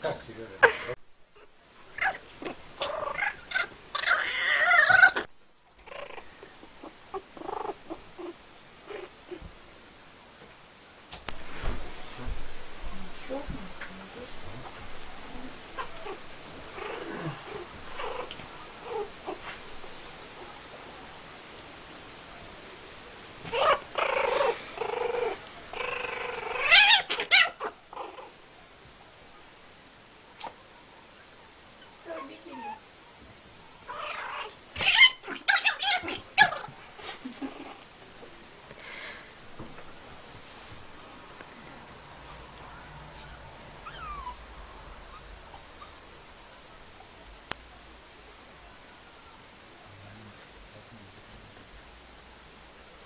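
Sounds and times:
kitten yowling and growling: 2.0s - 5.3s, 23.4s - 28.4s, 33.9s - 36.8s, 43.8s - 46.0s.

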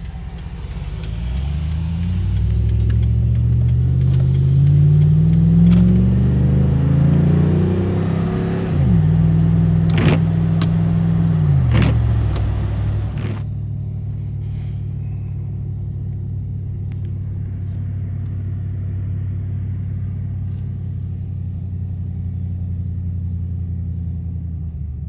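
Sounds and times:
sharp clicks: 0.0s - 6.1s
truck engine accelerating: 0.0s - 25.0s.

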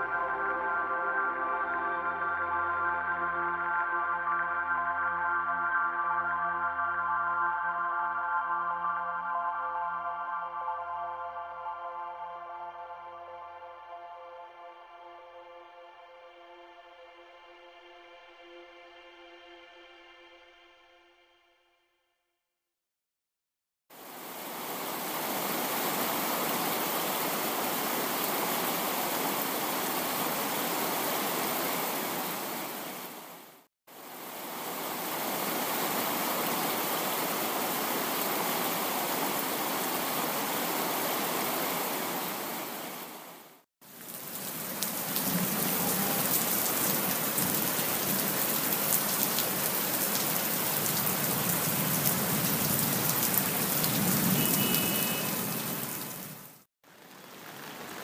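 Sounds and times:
steady rain: 23.9s - 58.0s
raindrop hits: 44.0s - 56.2s.

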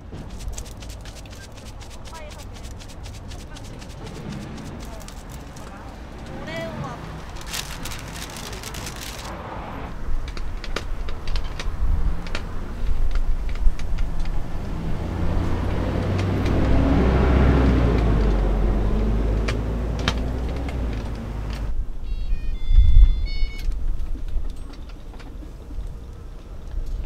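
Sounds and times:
vehicle passing by: 0.0s - 13.1s, 14.0s - 21.8s.

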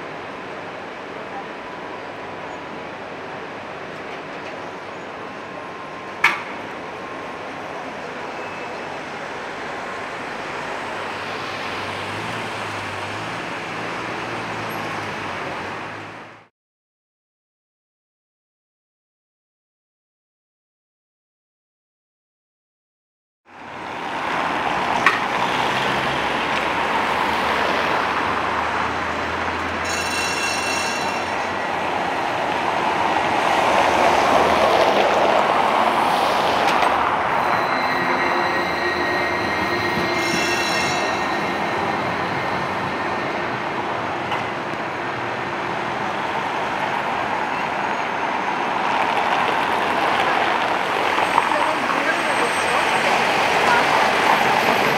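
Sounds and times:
trams rumbling over track: 0.0s - 16.5s, 23.5s - 54.9s
high wheel squeals: 7.9s - 12.8s, 24.8s - 34.6s, 35.7s - 45.3s, 47.2s - 49.3s, 50.9s - 54.9s.

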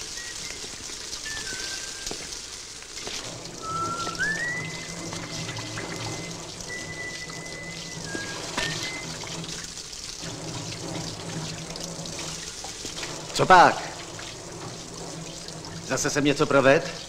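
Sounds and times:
man whistling a tune: 0.0s - 2.4s, 3.6s - 9.3s
water splashing and trickling: 0.0s - 17.0s.

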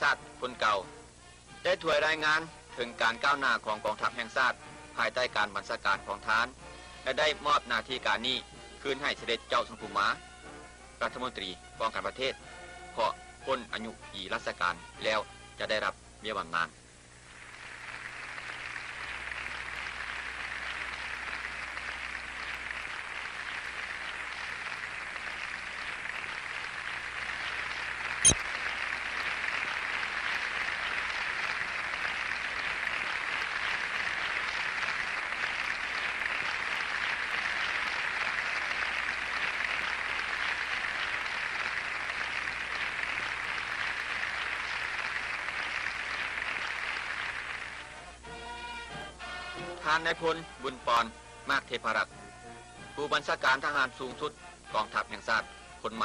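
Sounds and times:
crowd applauding: 17.3s - 48.2s.

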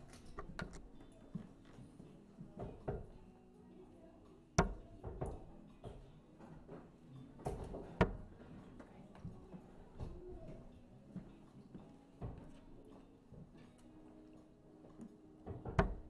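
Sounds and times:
darts striking dartboard: 4.6s - 5.3s, 8.0s - 8.3s.

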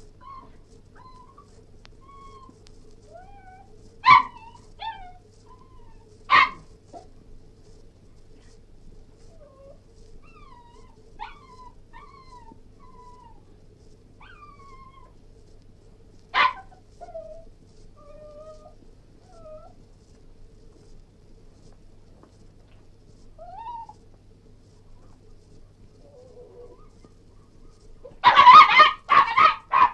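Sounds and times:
dog whimpering: 0.2s - 6.1s, 9.2s - 13.4s, 23.4s - 24.0s, 26.0s - 27.2s.

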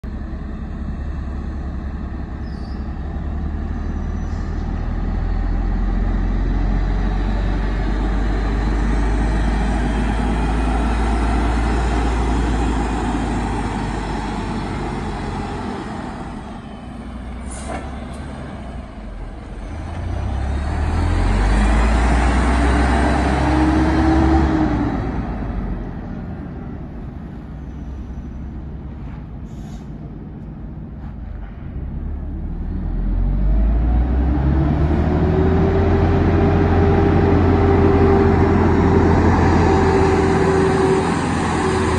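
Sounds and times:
truck engine rumbling: 0.0s - 41.9s
short air hiss: 29.4s - 30.0s.

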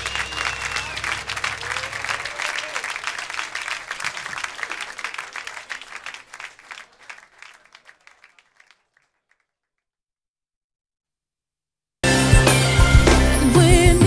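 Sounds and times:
audience applause: 0.0s - 9.5s.

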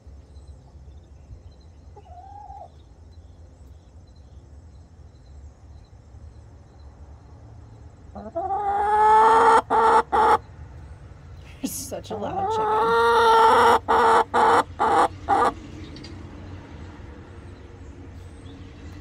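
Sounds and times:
chicken squawking: 2.0s - 2.7s, 8.2s - 10.4s, 12.3s - 15.6s
chicken clucking: 2.0s - 2.8s, 8.2s - 10.4s, 12.3s - 15.6s.

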